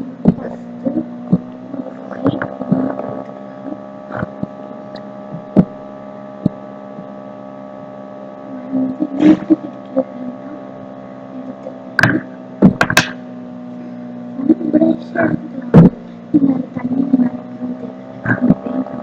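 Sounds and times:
steady electrical hum: 0:00.0 - 0:19.0.

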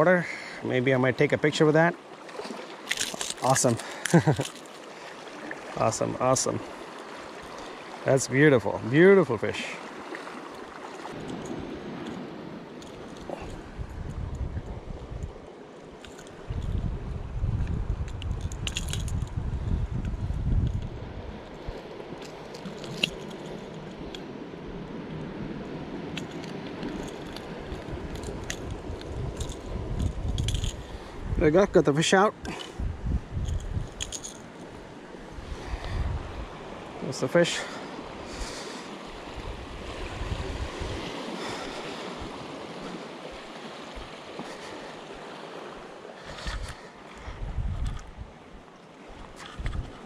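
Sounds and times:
waves washing against rocks: 0:00.6 - 0:10.4, 0:34.4 - 0:47.4
wind rumbling on microphone: 0:11.1 - 0:37.0, 0:37.9 - 0:50.0.

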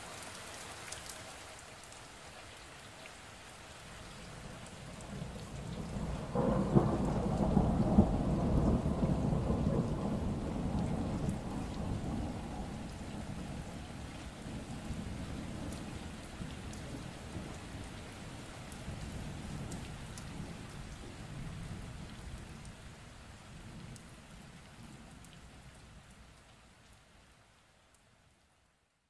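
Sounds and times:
steady rain falling: 0:00.0 - 0:29.0
low rumble of thunder: 0:04.6 - 0:25.8.

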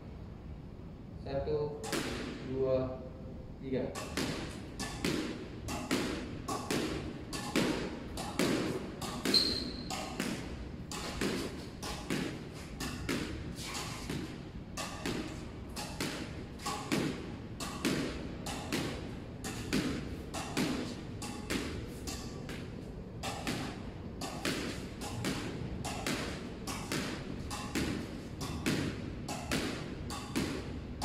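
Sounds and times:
squash ball hitting racket and wall: 0:01.7 - 0:02.6, 0:03.8 - 0:31.0
high squeak: 0:09.3 - 0:09.9.

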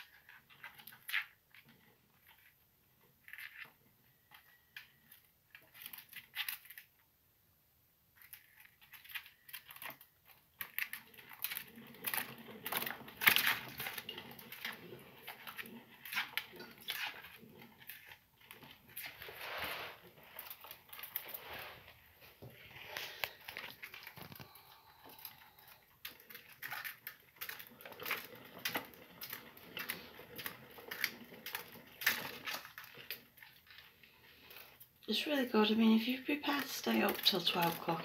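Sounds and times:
claws scrabbling and clicking: 0:00.0 - 0:07.1, 0:08.1 - 0:38.0
plastic exercise wheel rattling: 0:08.2 - 0:35.0, 0:35.6 - 0:38.0.

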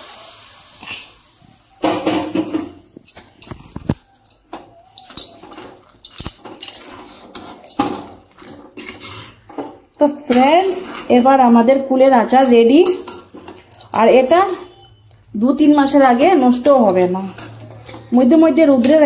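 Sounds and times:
metal spatula scraping metal pan: 0:06.4 - 0:15.0, 0:15.7 - 0:19.0.

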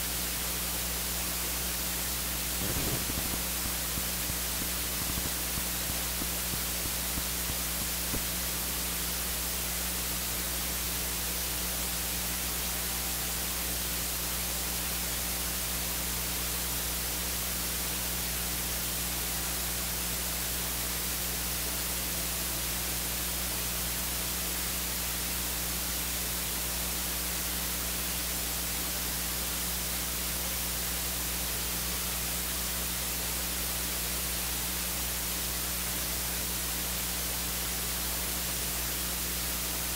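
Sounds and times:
low electrical hum: 0:00.0 - 0:39.9
electronic hiss: 0:00.9 - 0:16.4.

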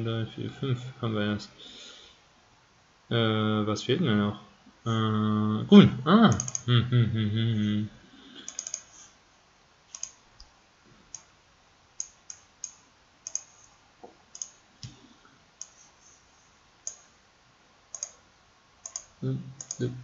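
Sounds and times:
computer mouse clicking: 0:06.3 - 0:06.7, 0:08.4 - 0:09.0, 0:09.9 - 0:10.5, 0:12.0 - 0:13.7, 0:14.3 - 0:15.0, 0:15.6 - 0:15.9, 0:16.8 - 0:17.1, 0:17.9 - 0:18.2, 0:18.8 - 0:19.9.

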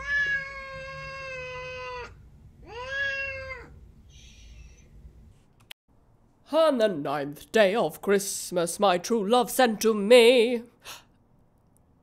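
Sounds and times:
cat meowing: 0:00.0 - 0:04.8.

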